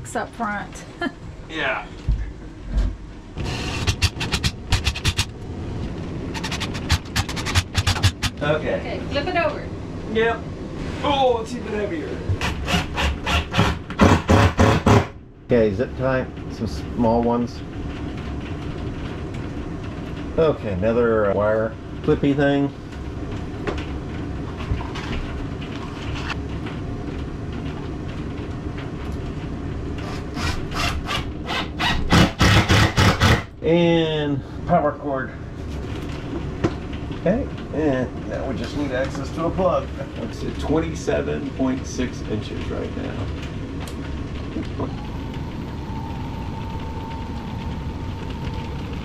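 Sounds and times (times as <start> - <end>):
cordless drill driving a screw: 12.4 - 15.0
desk motor whining: 42.7 - 49.0.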